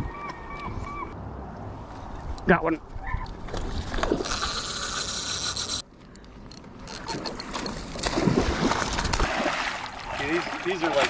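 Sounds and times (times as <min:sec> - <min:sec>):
fishing reel cranking: 0:04.2 - 0:05.8
fish splashing in water: 0:07.9 - 0:11.0.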